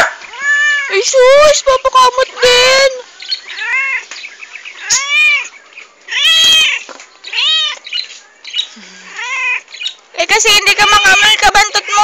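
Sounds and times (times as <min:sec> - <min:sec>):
cat meowing: 0:00.3 - 0:01.1, 0:03.5 - 0:04.1, 0:04.8 - 0:05.5, 0:06.1 - 0:07.8, 0:09.1 - 0:09.7, 0:10.7 - 0:12.0.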